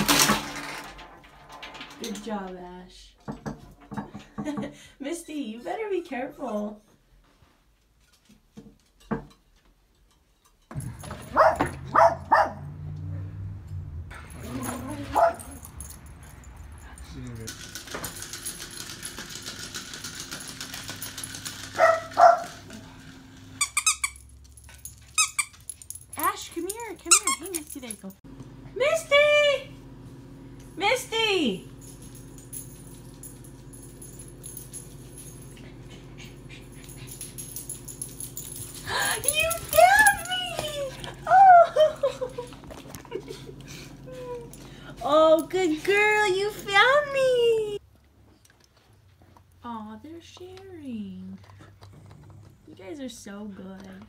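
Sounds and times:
dog barking: 11.3 - 12.8, 14.7 - 15.6, 21.8 - 22.6.

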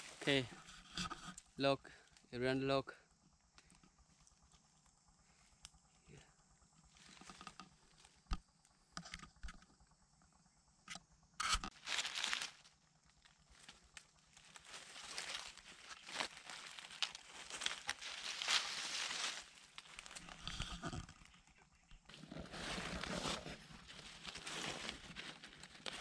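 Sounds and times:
dry leaves rustling: 11.7 - 20.6, 22.1 - 26.0.

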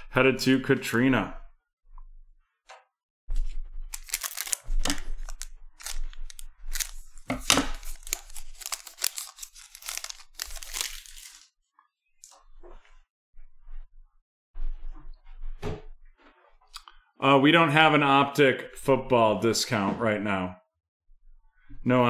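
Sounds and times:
wrapper crackling and tearing: 3.9 - 11.5.

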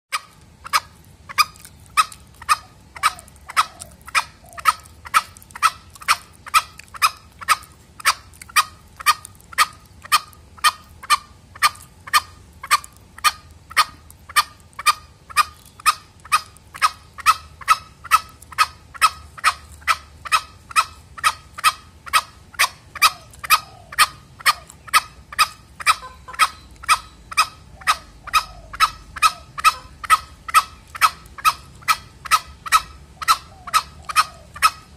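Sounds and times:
junglefowl clucking calls: 0.1 - 34.9.

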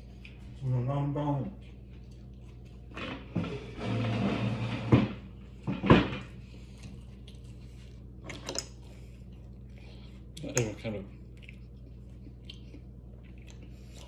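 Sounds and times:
chair scraping on floor: 2.9 - 6.3.

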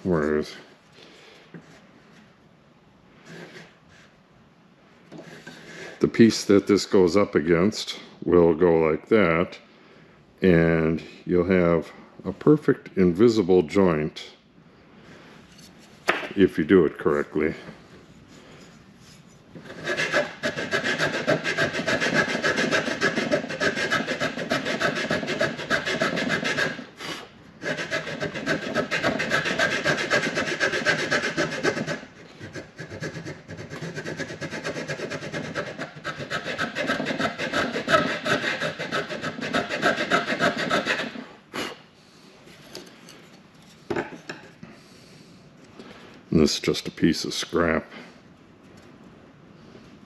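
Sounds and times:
file rasping on wood: 19.6 - 27.0, 27.6 - 41.3.

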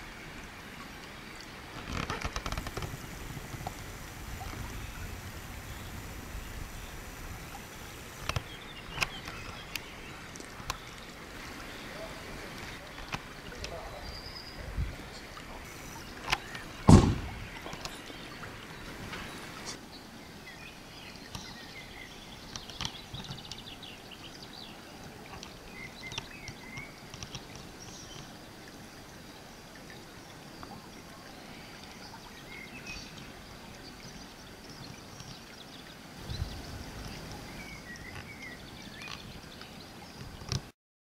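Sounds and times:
steady background hiss: 0.0 - 40.6
low thump: 16.9 - 17.5
faint high chirps and ticks: 20.6 - 40.7.

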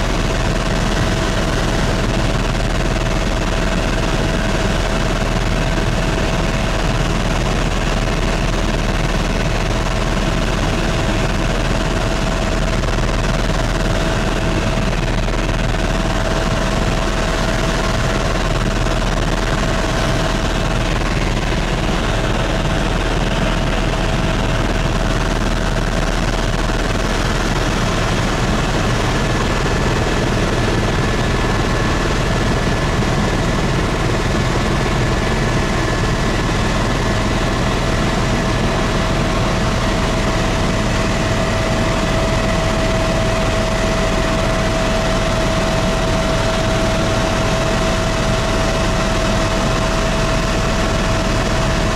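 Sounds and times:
constant whine: 0.0 - 51.9
helicopter engine and rotor drone: 0.0 - 51.9.

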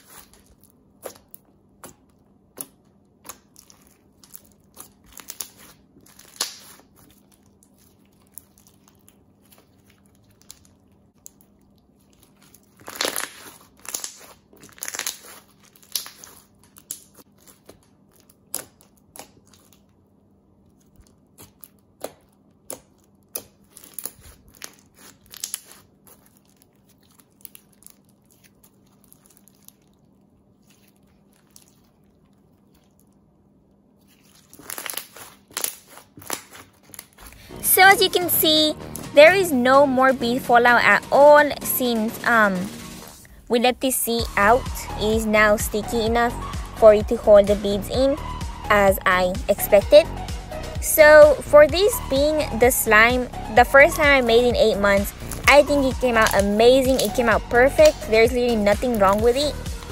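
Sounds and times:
slime crackling and popping: 0.0 - 37.4, 54.9 - 59.9.

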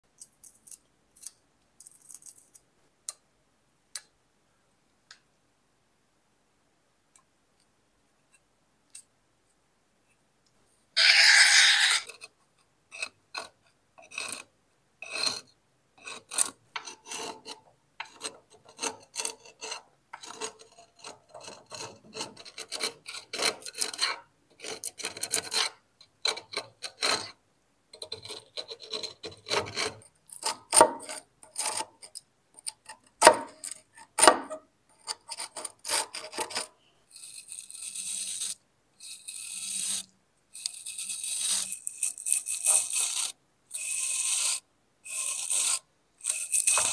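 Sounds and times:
scraping rusty metal: 11.0 - 12.2.

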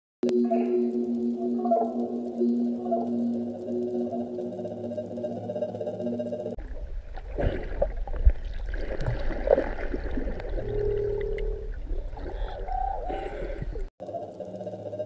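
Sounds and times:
whale tones: 0.2 - 6.6, 9.8 - 15.0
underwater water rumble: 6.6 - 13.9.

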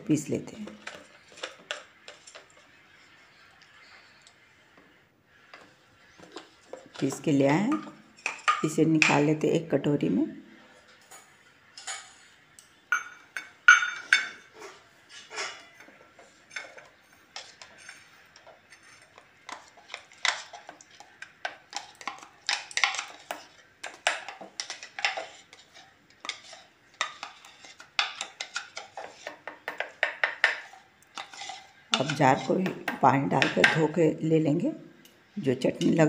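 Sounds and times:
spoon scraping jar and bowl: 0.6 - 4.2, 5.4 - 9.4, 10.8 - 33.9.

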